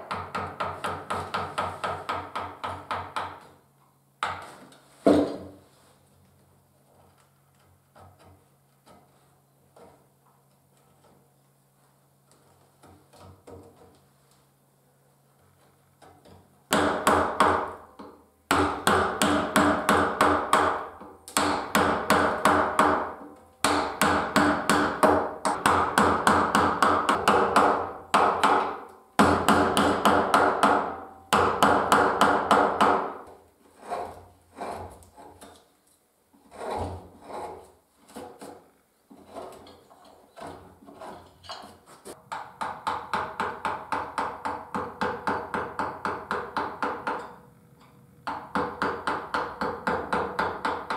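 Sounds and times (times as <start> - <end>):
mallet tapping a carving gouge: 0.0 - 3.5, 16.7 - 33.3, 42.2 - 47.4, 48.2 - 50.9.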